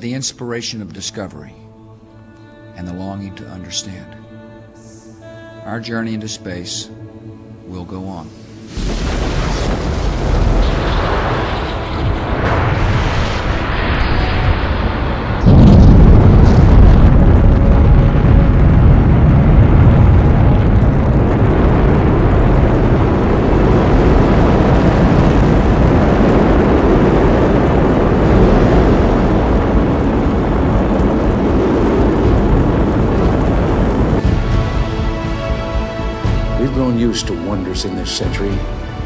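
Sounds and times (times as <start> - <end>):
rocket engines roaring: 8.9 - 38.4.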